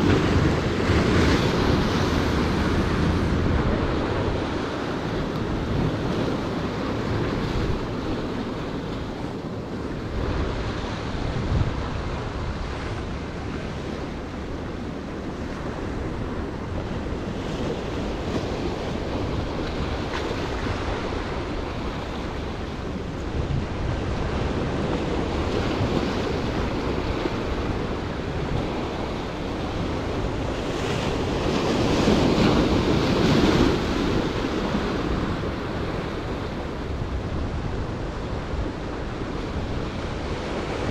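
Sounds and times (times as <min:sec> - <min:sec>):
wind buffeting microphone: 0:00.0 - 0:40.9.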